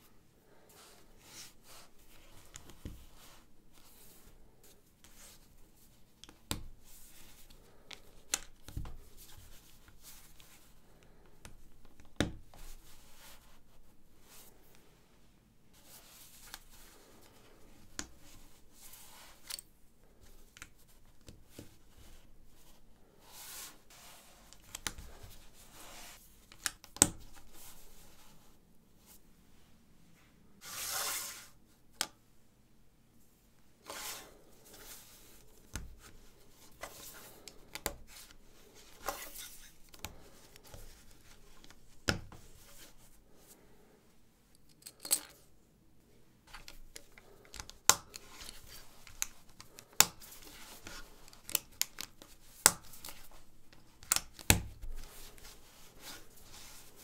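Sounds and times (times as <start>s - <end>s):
soft rubbing: 0.0s - 6.2s, 12.5s - 26.4s, 27.3s - 31.8s, 33.7s - 43.8s, 54.8s - 57.0s.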